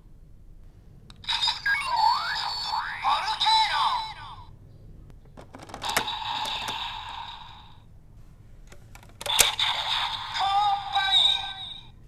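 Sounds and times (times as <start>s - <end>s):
electronic toy sound effects: 1.2s - 4.4s, 9.3s - 11.8s
plastic toy clicks: 5.4s - 7.3s, 8.7s - 10.2s.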